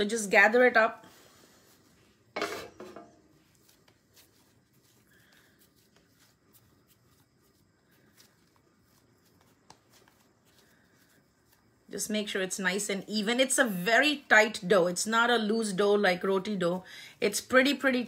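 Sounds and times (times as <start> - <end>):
hands patting dough: 3.0 - 15.0.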